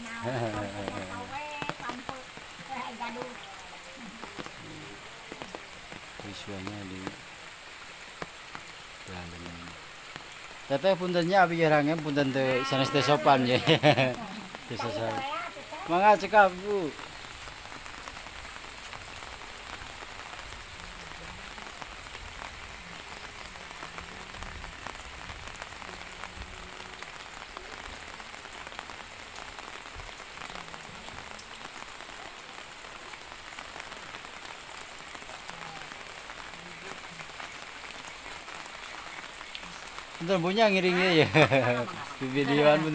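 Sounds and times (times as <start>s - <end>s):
light rain hissing: 0.0s - 42.9s
water drip ticks: 0.5s - 4.7s.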